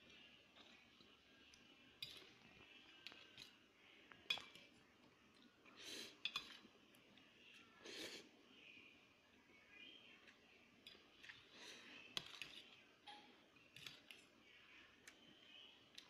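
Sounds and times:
cutlery clinking on metal plate: 2.0 - 2.4, 4.3 - 4.6, 6.2 - 6.7.

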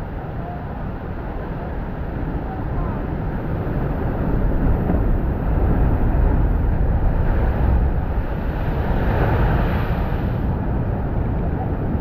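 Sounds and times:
ocean waves crashing on cliff: 2.2 - 10.8.

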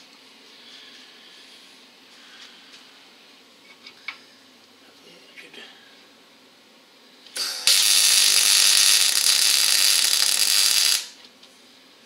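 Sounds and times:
welder sputter: 7.4 - 11.2
welding arc crackling: 7.4 - 11.2.

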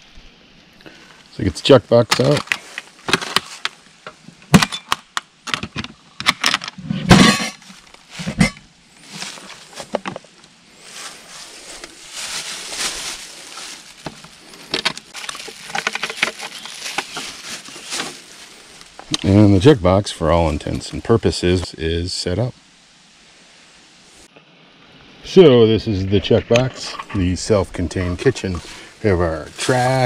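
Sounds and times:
plastic bag rustling: 7.2 - 10.1, 10.8 - 19.1.

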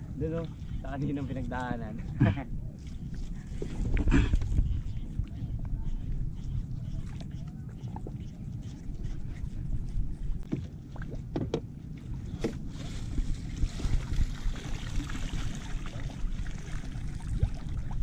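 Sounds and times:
water lapping against a hull: 0.0 - 18.0
wind rumbling on microphone: 0.0 - 18.0
light knocks on boat: 11.3 - 11.7.

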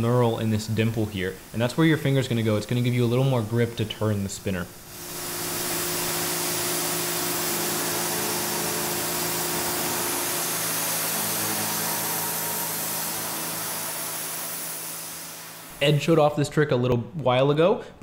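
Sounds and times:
air-blast coolant hiss: 0.0 - 16.3
mill spindle hum: 0.0 - 16.3.

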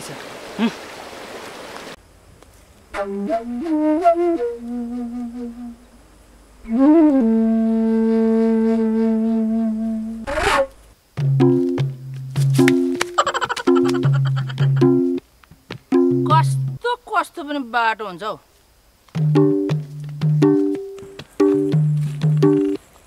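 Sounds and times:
background music melody: 3.0 - 6.0, 6.6 - 15.2, 15.8 - 16.9, 19.1 - 22.8
low rhythmic part: 11.2 - 16.8, 19.1 - 22.8.

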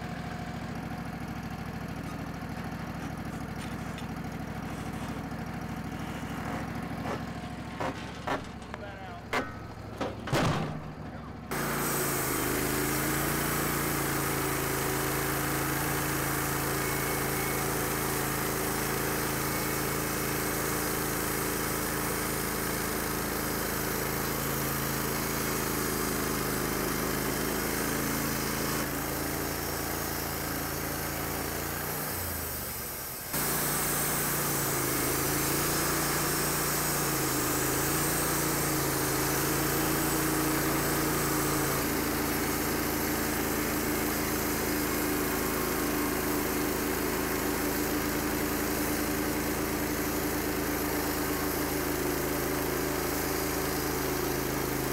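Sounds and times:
sawmill engine under load: 0.0 - 54.9
band blade hissing in wood: 11.5 - 22.6, 33.3 - 53.4.

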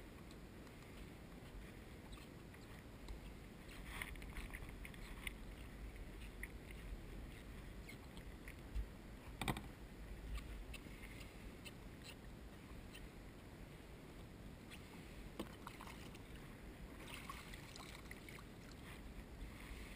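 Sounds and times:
small drips and clicks: 17.0 - 18.9.

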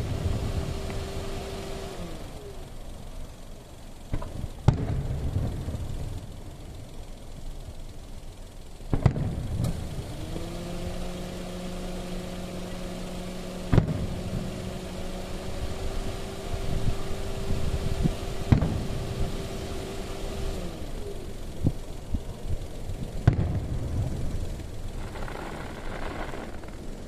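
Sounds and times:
steady low hum: 0.0 - 27.0
fireworks bursting: 4.1 - 6.2, 8.9 - 9.9, 13.4 - 15.7, 16.7 - 20.5, 21.6 - 27.0.

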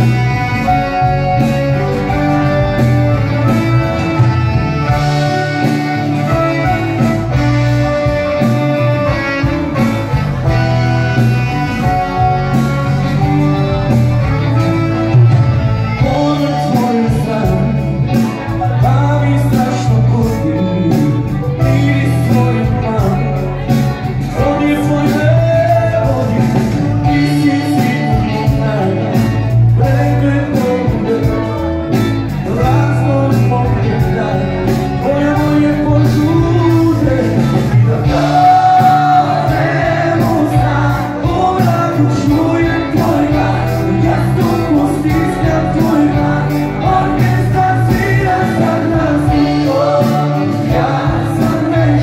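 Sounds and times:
drums: 0.0 - 52.0
electric guitar: 0.0 - 52.0
male and female voices singing: 16.0 - 52.0.

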